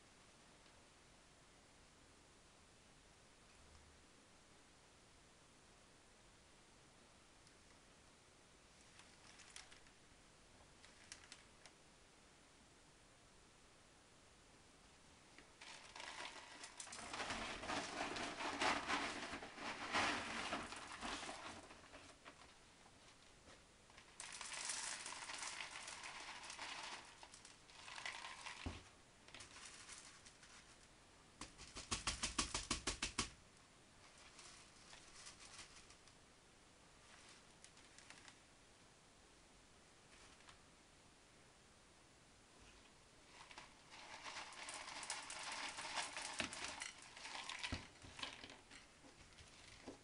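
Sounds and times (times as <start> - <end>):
clay pebbles rattling: 8.9 - 10.0, 10.8 - 11.8, 15.4 - 22.6, 23.9 - 33.4, 43.2 - 50.0.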